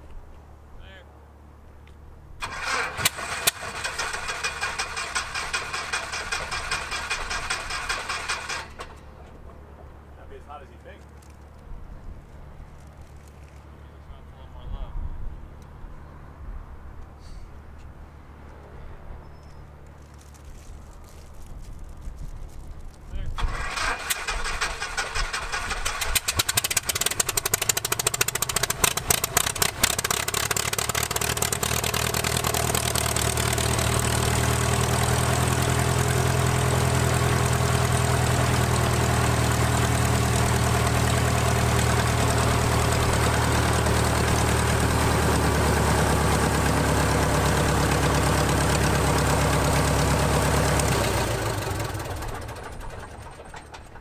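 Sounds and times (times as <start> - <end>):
propeller aircraft engine: 2.4 - 10.1, 23.4 - 54.0.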